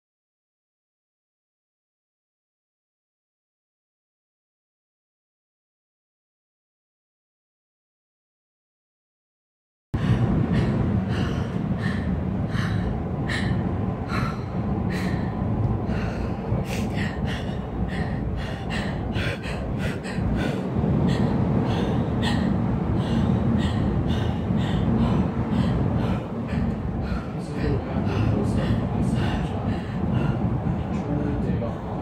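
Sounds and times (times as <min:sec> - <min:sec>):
gondola cabin rumble: 0:10.0 - 0:32.0.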